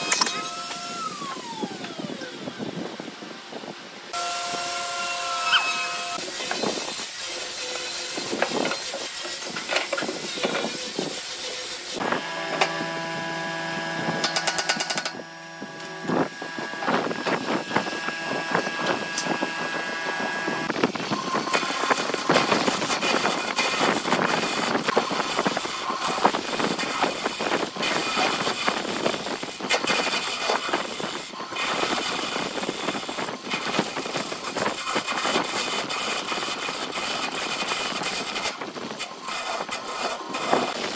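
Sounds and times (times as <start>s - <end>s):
motor hum: 0.0s - 8.9s, 9.5s - 34.8s
gouge cutting wood on lathe: 13.8s - 40.9s.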